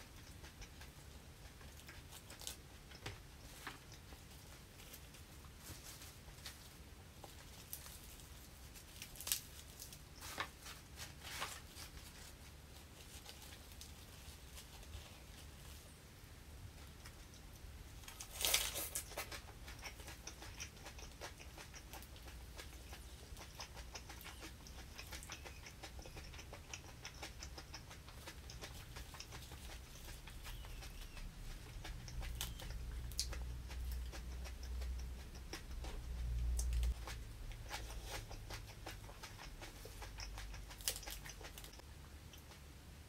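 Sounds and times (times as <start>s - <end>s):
close chewing: 0.0s - 16.0s, 16.7s - 42.7s
herb leaves crackling by hand: 3.5s - 15.9s, 18.0s - 20.4s, 40.0s - 41.8s.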